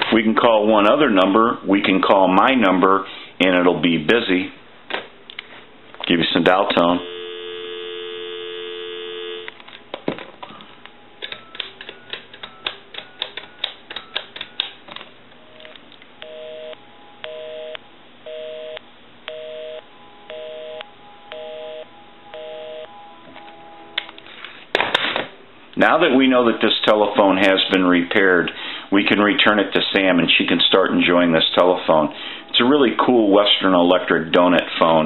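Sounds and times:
busy signal pulsing: 7.0s - 9.6s, 16.2s - 24.0s
telephone dial tone: 7.0s - 9.6s.

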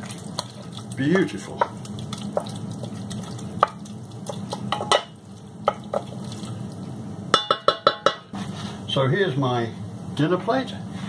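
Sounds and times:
wooden spoon stirring spaghetti: 0.0s - 6.6s
spoon tapping saucepan: 3.6s - 6.1s, 7.4s - 8.2s.

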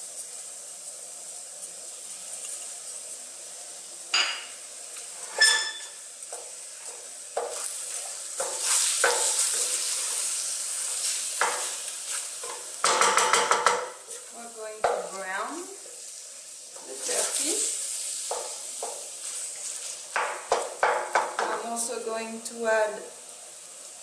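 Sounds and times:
meat sizzling in a pan: 0.0s - 24.0s
wooden spoon scraping a pan: 4.9s - 15.4s, 16.8s - 21.6s.

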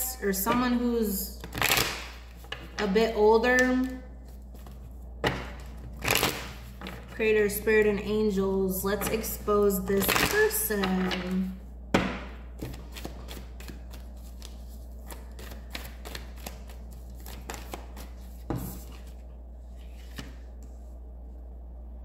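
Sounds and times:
low steady hum: 0.0s - 22.0s
cards being shuffled: 3.8s - 7.1s, 12.6s - 20.7s.

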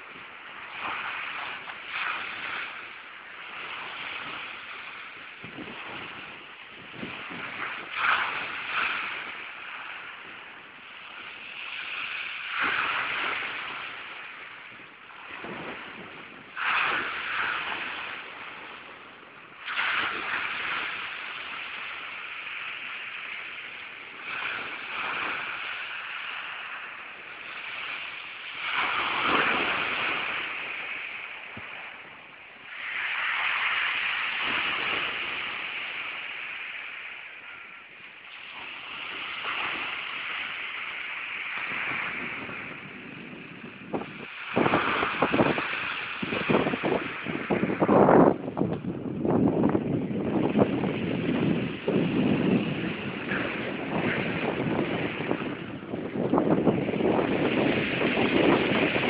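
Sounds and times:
waves breaking on shingle: 0.0s - 59.0s
foam hissing: 16.5s - 18.7s, 19.6s - 47.9s.

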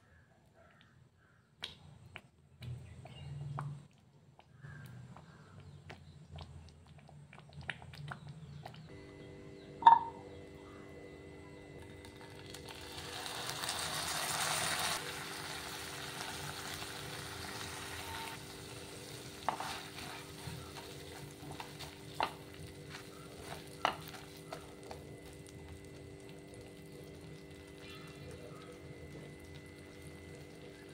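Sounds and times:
food frying softly: 9.8s - 30.9s
butter sizzling in frying pan: 12.0s - 28.1s
spatula stirring and spreading: 18.0s - 25.9s.

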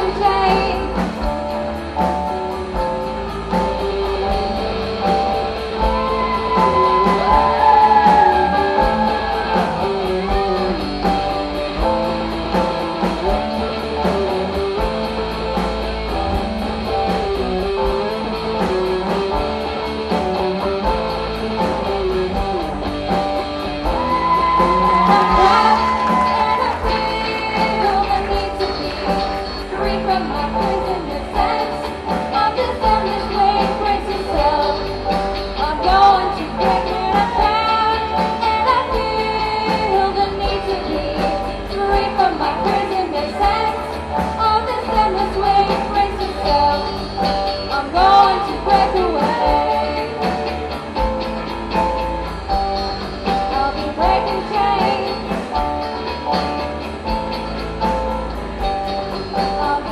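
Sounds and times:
live rock band playing: 0.0s - 59.9s
girls singing: 47.8s - 50.3s.

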